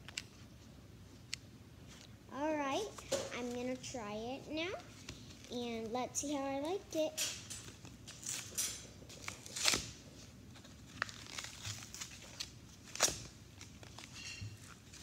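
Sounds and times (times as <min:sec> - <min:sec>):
plastic packaging crinkling: 0:07.6 - 0:15.0
loud plastic crackles: 0:10.6 - 0:15.0.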